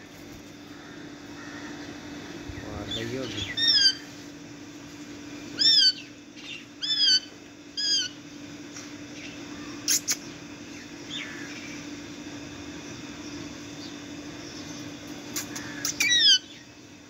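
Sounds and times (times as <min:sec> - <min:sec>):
parakeets squawking: 0:02.6 - 0:04.1, 0:05.6 - 0:08.2, 0:15.4 - 0:16.6.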